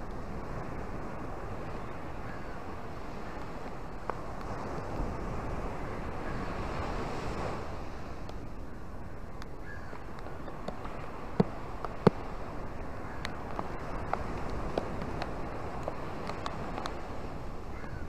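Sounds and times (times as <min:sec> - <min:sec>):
waves breaking over rocks: 0:00.0 - 0:17.7
surf washing onto beach: 0:00.0 - 0:18.0.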